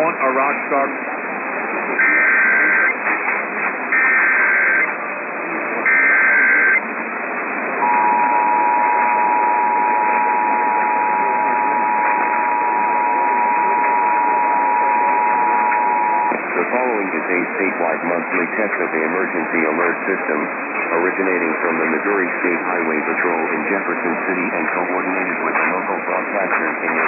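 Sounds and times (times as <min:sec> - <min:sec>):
radio static hiss: 0:00.0 - 0:27.0
digital data bursts screeching: 0:02.0 - 0:03.0, 0:03.9 - 0:04.9, 0:05.9 - 0:06.8
two-tone attention signal: 0:02.0 - 0:03.0, 0:03.9 - 0:04.9, 0:05.8 - 0:06.8, 0:07.8 - 0:16.4.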